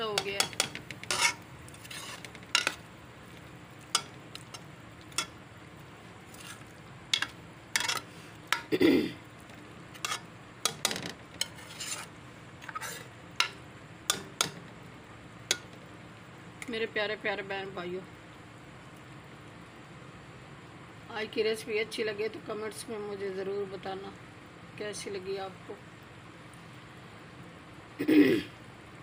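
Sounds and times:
spoon knocking pan: 0.0 - 1.4, 2.0 - 2.8, 3.9 - 5.4, 10.0 - 11.6, 13.4 - 14.7, 15.5 - 15.8
spoon scraping metal pan: 0.0 - 2.8, 6.2 - 8.7, 9.9 - 14.6
faint oil sizzle: 0.0 - 29.0.

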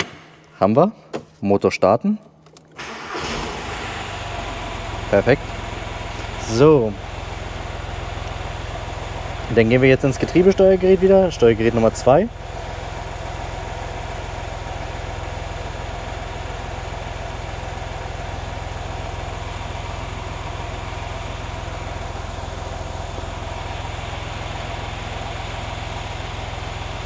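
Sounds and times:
diesel engine idling: 2.8 - 27.0.

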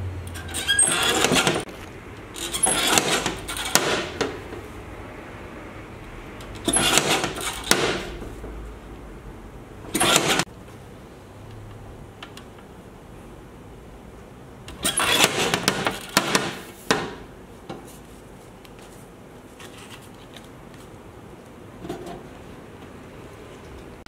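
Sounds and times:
guillotine paper cutter cutting: 0.3 - 1.7, 2.3 - 4.4, 6.6 - 8.2, 9.9 - 10.5, 14.7 - 16.7.

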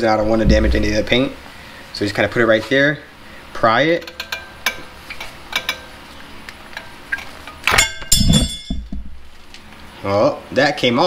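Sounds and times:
dull thud: 0.2 - 1.4
loud metallic clink: 7.7 - 8.8.

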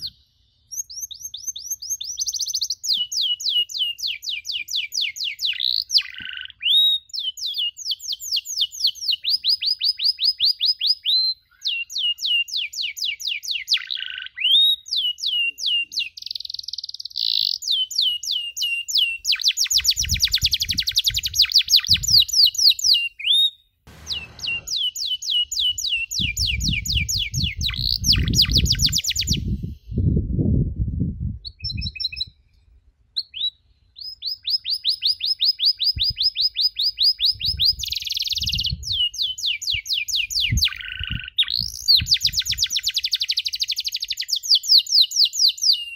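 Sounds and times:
canary singing trills: 0.0 - 30.0, 33.2 - 45.9
low rumbling noise: 23.9 - 24.8.

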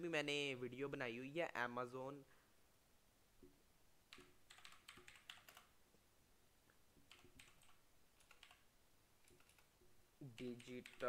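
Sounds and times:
faint keyboard typing: 4.1 - 5.8, 6.7 - 11.0.

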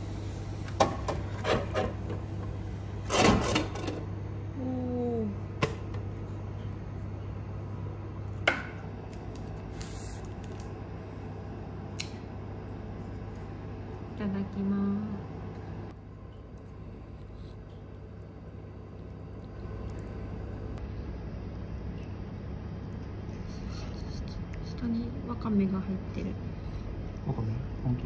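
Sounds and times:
low hum: 3.7 - 28.0.

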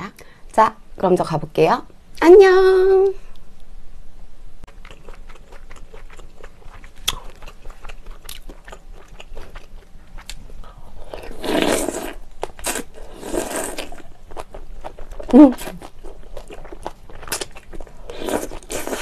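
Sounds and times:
wet chewing: 4.7 - 19.0
noodles slurped: 11.3 - 14.1, 18.1 - 19.0.

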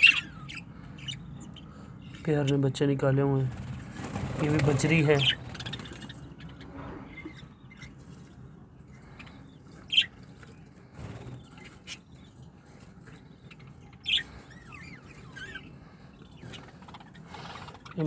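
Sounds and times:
budgerigar chirping: 0.0 - 1.7, 13.6 - 18.0.

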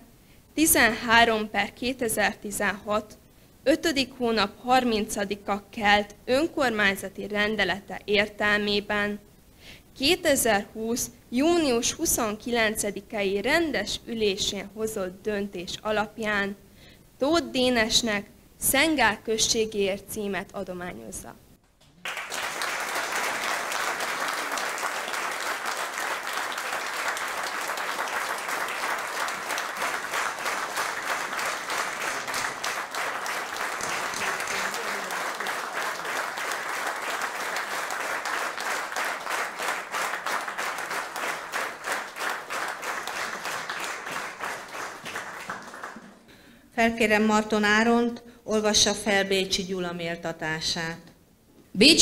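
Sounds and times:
audience applauding: 21.8 - 46.3.

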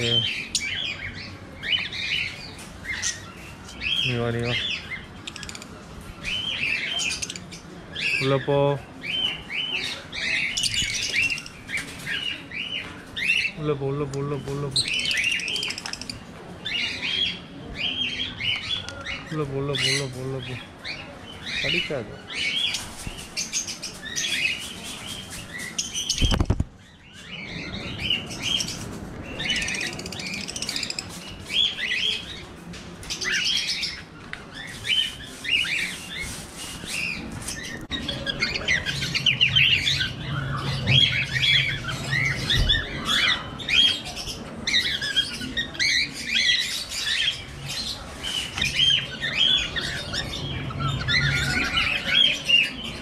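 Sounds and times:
cockatiels chirping and calling: 9.0 - 13.6, 33.0 - 53.0.

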